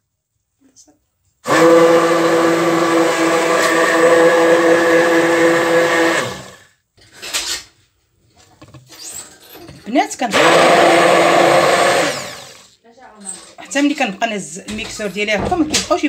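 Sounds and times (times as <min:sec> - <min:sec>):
immersion blender running: 0:01.4 - 0:06.7, 0:10.3 - 0:12.8.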